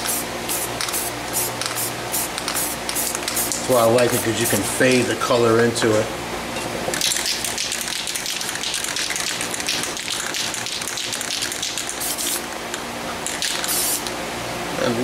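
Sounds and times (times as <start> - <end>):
spray can hissing: 0.0 - 3.6, 7.0 - 12.4, 13.4 - 14.1
spray can rattling: 0.1 - 3.6, 7.0 - 12.4, 13.2 - 14.1.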